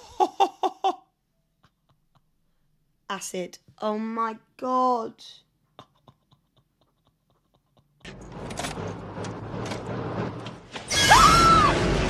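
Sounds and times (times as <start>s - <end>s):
machinery rumbling and clattering: 8.0s - 12.0s
loud scream: 10.9s - 11.9s.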